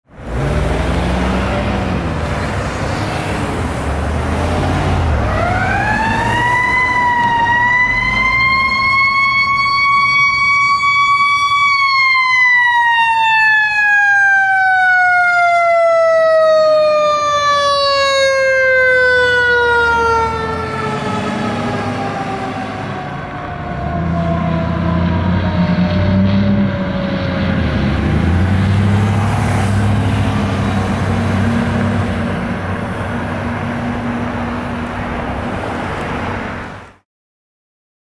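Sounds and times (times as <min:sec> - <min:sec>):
traffic rumble: 0:00.1 - 0:37.0
mechanical fire siren: 0:05.1 - 0:31.9.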